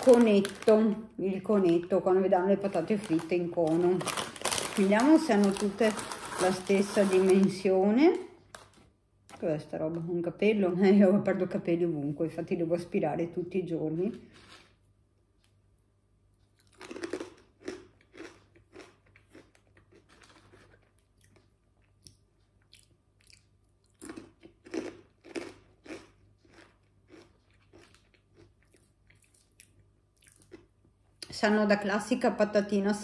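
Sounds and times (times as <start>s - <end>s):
crunching potato chips: 0.0s - 0.9s, 2.6s - 7.6s, 16.6s - 30.8s.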